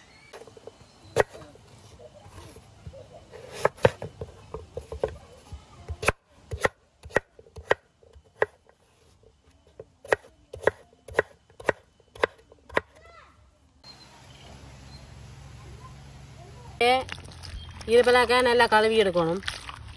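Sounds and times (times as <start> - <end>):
knife chopping on wooden board: 3.4 - 5.2, 10.0 - 12.8.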